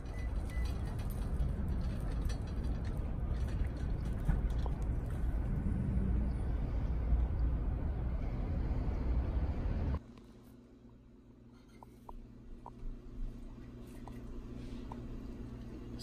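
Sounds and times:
faint clicks and rattles: 0.0 - 5.6
parking lot rumble: 0.0 - 11.4.

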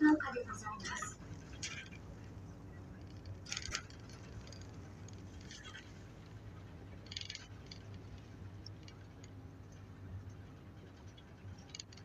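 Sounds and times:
bus engine drone: 0.0 - 12.0.

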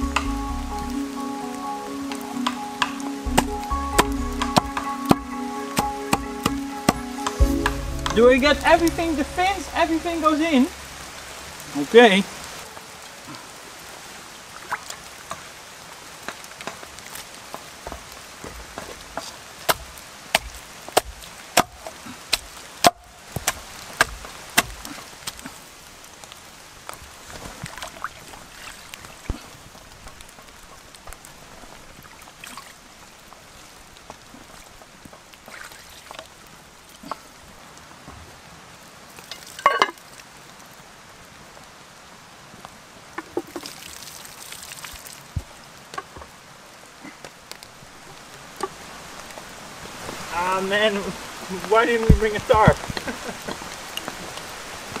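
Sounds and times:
steady rain: 0.0 - 55.0
hatchet chopping on wooden log: 18.8 - 24.9.

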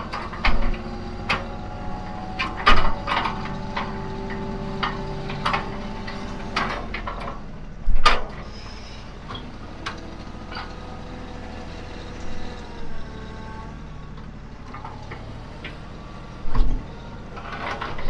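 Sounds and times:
tractor engine running: 0.0 - 18.0.

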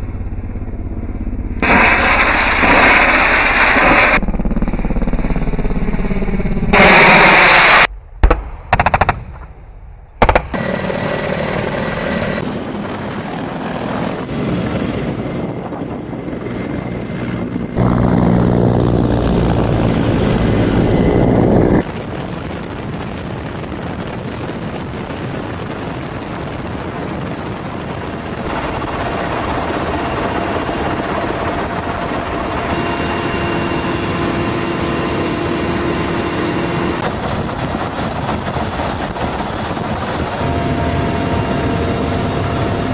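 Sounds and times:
helicopter rotor and turbine noise: 0.0 - 8.0, 8.6 - 42.9.

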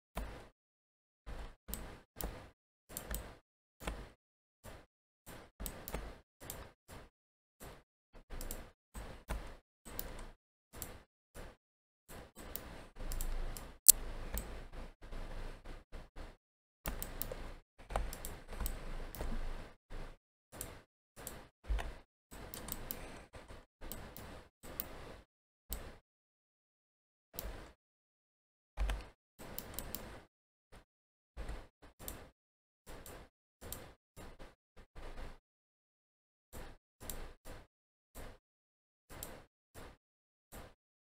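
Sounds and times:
computer mouse clicks: 1.4 - 4.1, 4.7 - 7.0, 7.6 - 11.5, 12.1 - 14.7, 16.9 - 19.4, 20.6 - 23.2, 23.8 - 25.1, 25.7 - 26.0, 27.4 - 27.8, 28.8 - 30.3, 31.4 - 32.3, 32.9 - 34.4, 37.0 - 37.4, 39.1 - 39.4.

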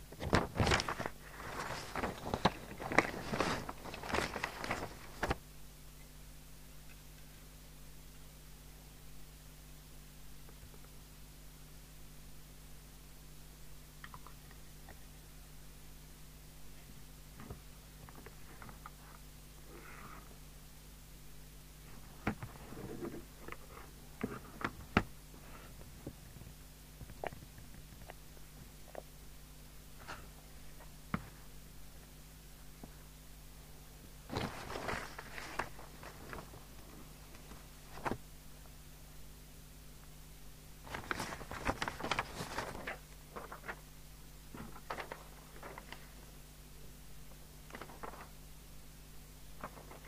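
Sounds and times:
steady low hum: 0.0 - 50.0
rustling and light clicks: 0.1 - 5.4.

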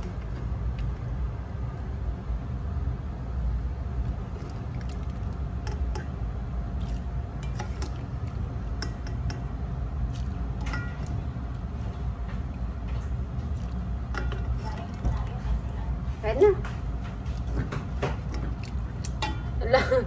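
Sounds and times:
steady low rumble: 0.0 - 20.0
utensils and dishes clinking: 10.6 - 11.2, 13.6 - 15.7, 17.4 - 20.0.

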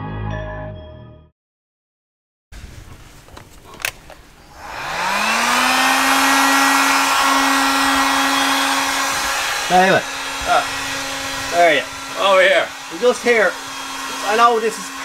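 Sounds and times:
electric fan motor whine: 2.8 - 15.0
rush of blown air: 4.5 - 14.3.

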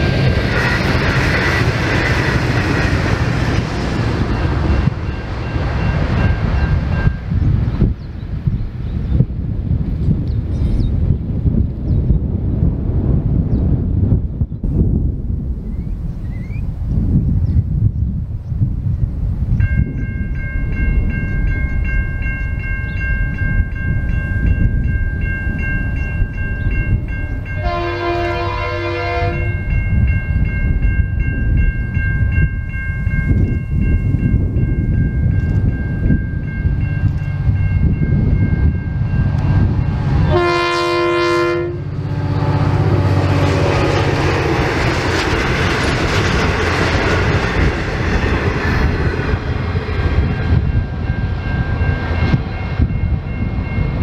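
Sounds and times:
train engine rumble and wheels: 0.0 - 54.0
wind on microphone: 0.0 - 54.0
locomotive horn blasts: 27.0 - 29.6, 40.2 - 42.5.

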